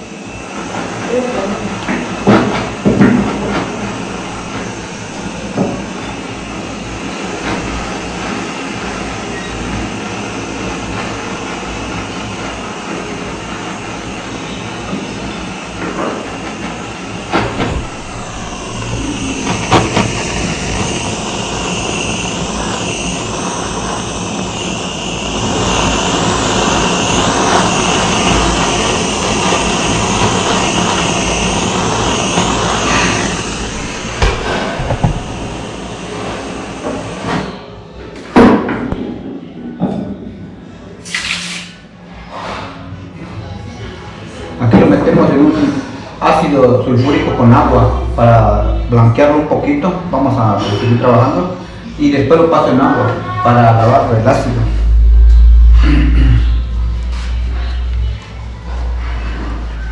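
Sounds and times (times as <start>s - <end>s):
gas torch flame hissing: 0.0s - 37.6s, 41.0s - 41.9s.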